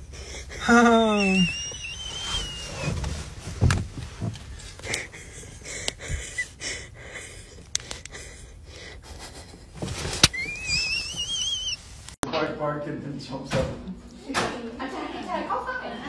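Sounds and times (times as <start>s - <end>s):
person wheezing and gasping: 0.0s - 2.0s, 4.8s - 9.6s
high wavering whistle tone: 1.0s - 3.0s, 10.3s - 11.9s
rustling: 1.2s - 5.4s.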